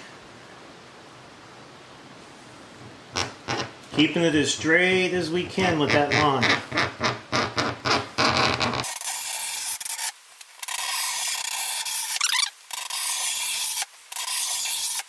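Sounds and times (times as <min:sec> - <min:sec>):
cutter scraping acrylic sheet: 0:05.5 - 0:15.0.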